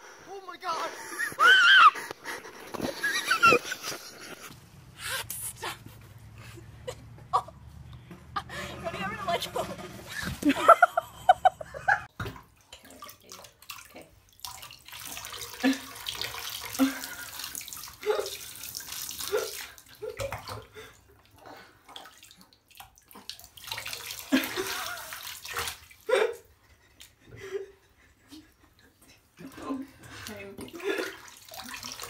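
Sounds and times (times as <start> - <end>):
water running into bathtub: 12.1 - 26.5, 28.4 - 32.0.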